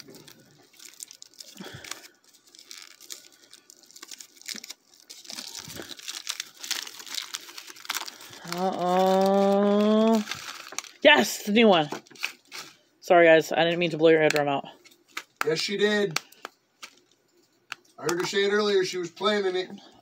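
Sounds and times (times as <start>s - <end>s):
foil wrapper crinkling and tearing: 0.0s - 12.8s, 14.9s - 18.3s.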